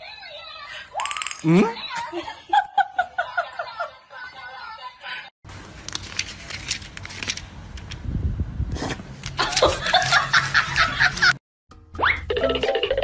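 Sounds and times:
faint clicks and handling noise: 5.6 - 8.0.

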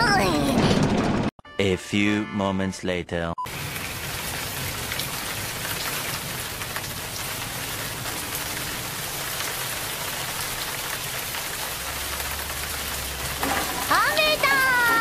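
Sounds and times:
heavy rain: 3.5 - 15.0.

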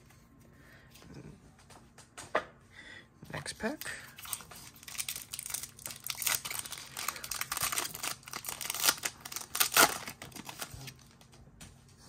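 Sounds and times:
wrapper crinkling and tearing: 4.2 - 11.3.

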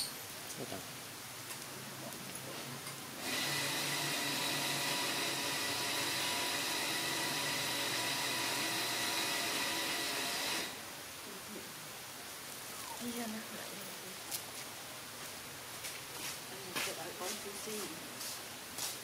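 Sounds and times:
small motor whirring: 3.2 - 10.8.

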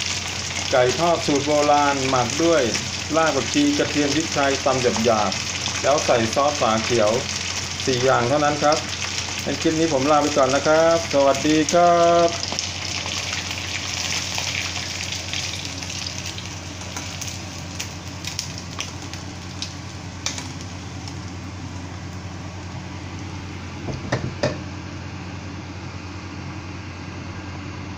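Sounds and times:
food deep-frying in oil: 0.0 - 24.8
steady low hum: 0.0 - 27.9.

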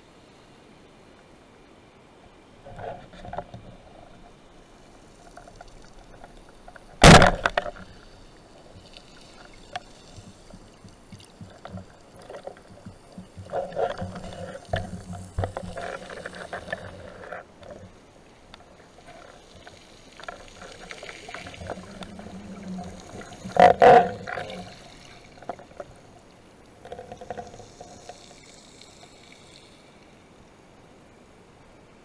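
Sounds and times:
underwater handling clicks and knocks: 5.2 - 8.0, 9.6 - 17.9, 18.5 - 24.8
loud double thump: 7.0 - 7.5.

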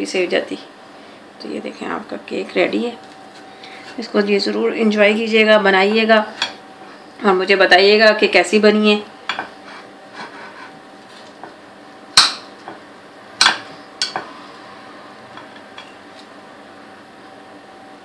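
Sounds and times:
knife tapping and scraping: 9.3 - 11.6, 13.4 - 14.3.

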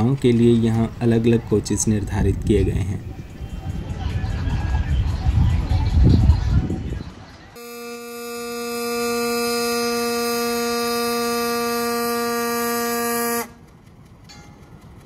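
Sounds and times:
locomotive air horn blast: 7.6 - 13.6.

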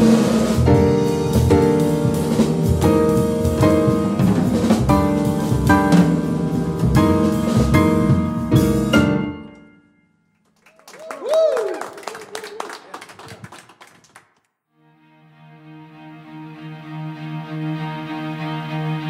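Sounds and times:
double bass: 0.0 - 9.2
drum kit with ride cymbals: 0.0 - 9.4
piano: 0.0 - 11.7, 15.0 - 19.0.

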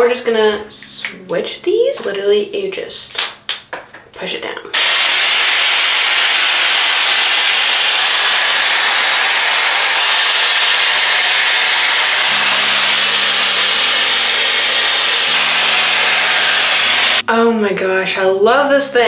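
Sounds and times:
hair styler fan blowing air: 4.8 - 17.2.

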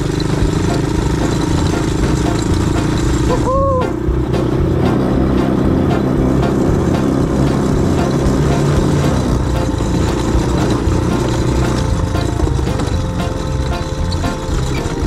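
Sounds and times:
quad bike engine running: 0.0 - 15.0.

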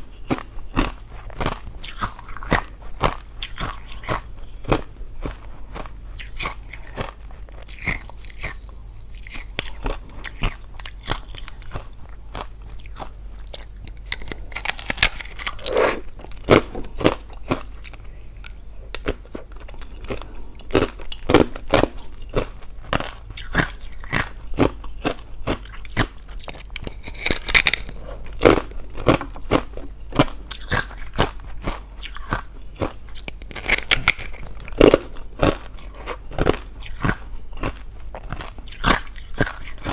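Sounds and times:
crunching and chewing ice: 0.2 - 39.9.

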